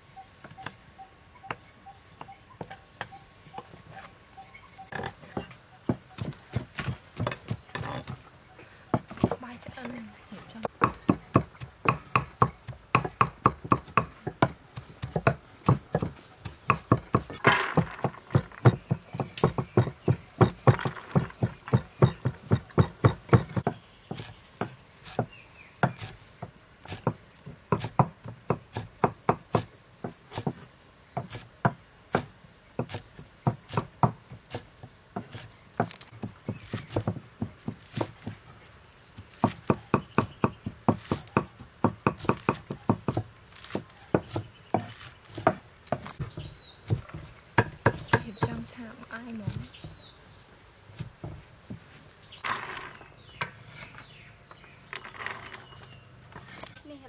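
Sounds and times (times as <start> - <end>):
cleaver chopping on wooden block: 4.9 - 8.2, 10.6 - 38.4, 39.2 - 50.1.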